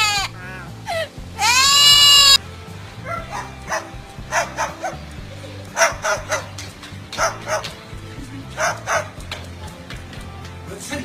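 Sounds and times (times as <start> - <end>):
background music: 0.0 - 11.0
cockatoo imitating dog bark: 1.4 - 2.4.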